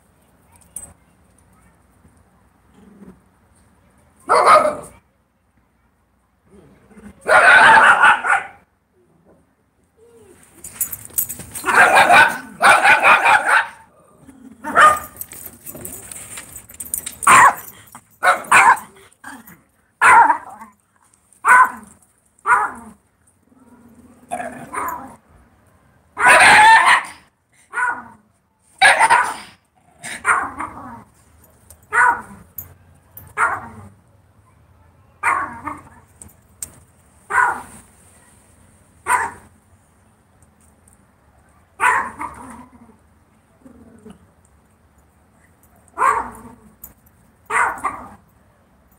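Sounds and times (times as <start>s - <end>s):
dog barking: 4.3s - 4.9s, 7.3s - 8.6s, 11.7s - 13.9s, 14.7s - 15.1s, 17.3s - 18.9s, 20.0s - 20.6s, 21.5s - 21.8s, 22.5s - 22.8s, 26.2s - 28.0s, 28.8s - 29.5s, 31.9s - 32.3s, 33.4s - 33.8s, 35.2s - 35.9s, 37.3s - 37.7s, 39.1s - 39.4s, 41.8s - 42.4s, 46.0s - 46.4s, 47.5s - 48.1s.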